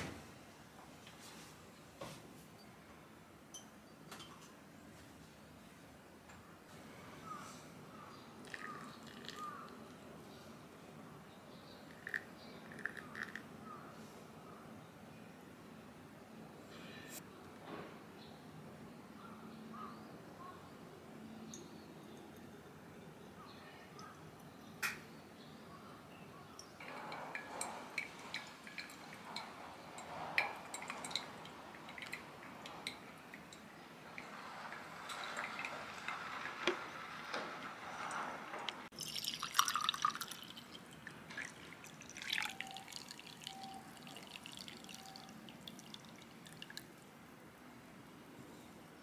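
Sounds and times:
hot water pouring from kettle: 8.4 - 9.6, 11.9 - 13.4, 26.8 - 46.9
coffee dripping and trickling: 8.4 - 10.1, 11.7 - 13.5, 26.6 - 37.3, 38.0 - 47.1.

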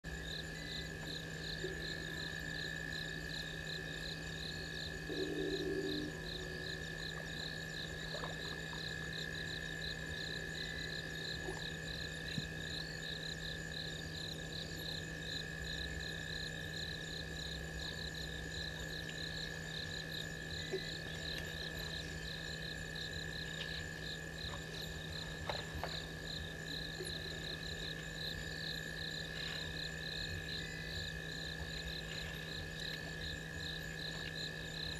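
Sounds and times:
frogs and insects trilling: 0.0 - 34.9
low-pitched frog call: 4.9 - 9.3.

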